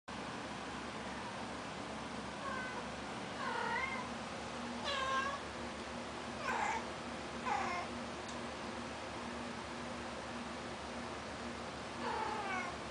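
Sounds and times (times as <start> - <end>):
room hum: 0.1 - 12.9
cat meowing: 2.4 - 2.8, 3.4 - 4.1, 4.8 - 5.4, 6.4 - 6.9, 12.0 - 12.8.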